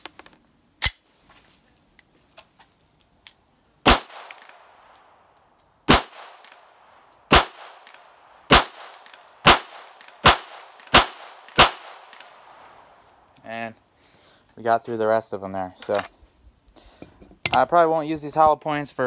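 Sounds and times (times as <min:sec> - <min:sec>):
pistol shots with ringing echo: 0:03.8 - 0:12.8.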